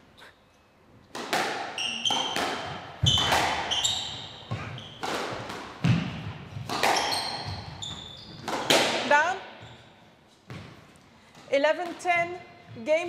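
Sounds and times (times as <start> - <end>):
squash ball hitting rackets and walls: 1.0 - 13.0
shoes squeaking on court floor: 1.7 - 11.0.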